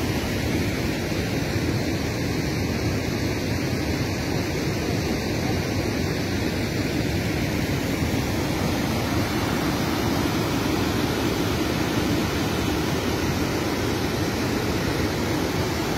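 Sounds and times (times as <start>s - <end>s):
floodwater rushing: 6.6s - 15.9s.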